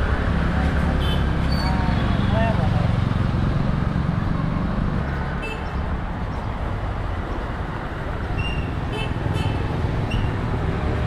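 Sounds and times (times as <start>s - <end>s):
low rumble of street traffic: 0.0s - 11.0s.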